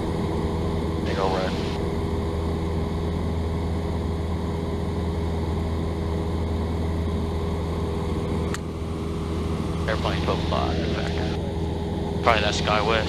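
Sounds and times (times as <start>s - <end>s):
airplane engine droning in cabin: 0.0s - 13.0s.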